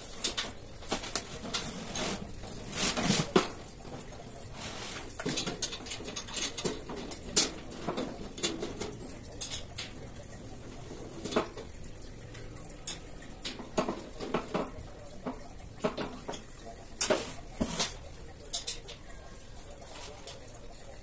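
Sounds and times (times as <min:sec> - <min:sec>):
steel tubes clinking and knocking: 0:00.0 - 0:19.4.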